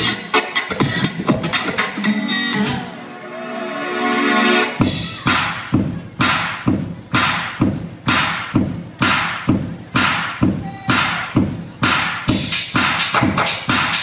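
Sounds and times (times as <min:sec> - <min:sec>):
heavy percussive hits: 0:04.8 - 0:14.0.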